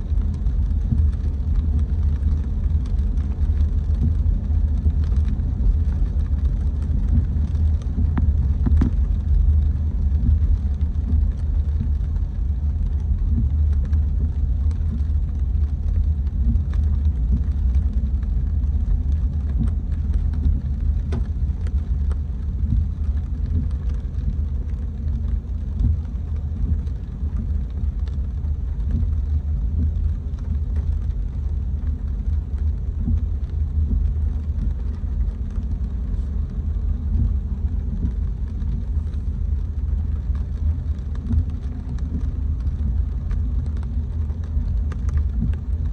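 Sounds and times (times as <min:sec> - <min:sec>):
car engine and road rumble: 0:00.0 - 0:45.9
faint ticks: 0:00.1 - 0:45.9.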